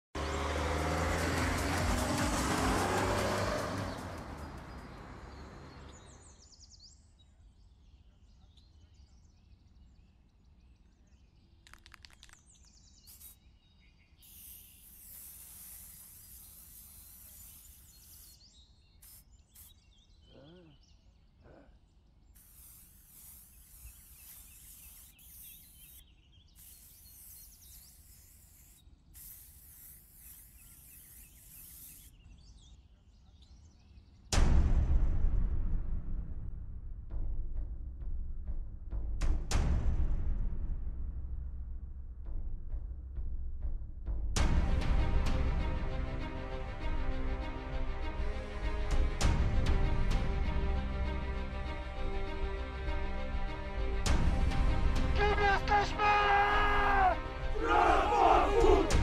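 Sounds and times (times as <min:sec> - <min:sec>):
van driving past: 0:00.2 - 0:06.3
aerosol spray can hissing: 0:11.7 - 0:13.5, 0:14.2 - 0:19.8, 0:22.4 - 0:32.1, 0:56.7 - 0:59.0.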